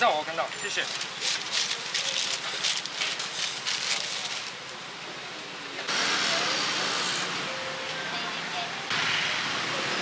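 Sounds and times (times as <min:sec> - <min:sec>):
street noise: 0:00.0 - 0:10.0
paper crackling and rustling: 0:00.7 - 0:04.7.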